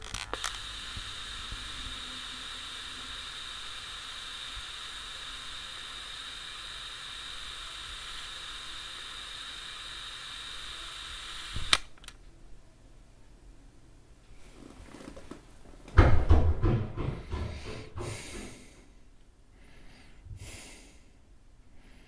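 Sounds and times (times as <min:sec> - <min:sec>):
hiss from small speaker: 0:00.0 - 0:11.9.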